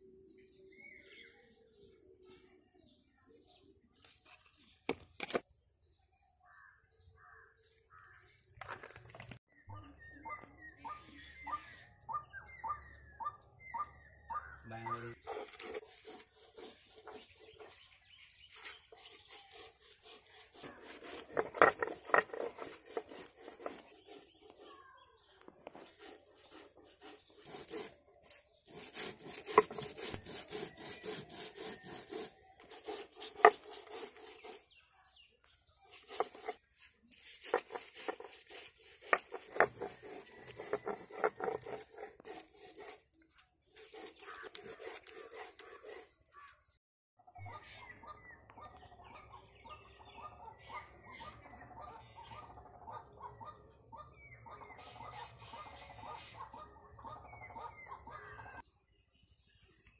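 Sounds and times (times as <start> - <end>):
bird calls: 9.5 - 59.9
grinding stone scraping on slab: 14.9 - 46.6.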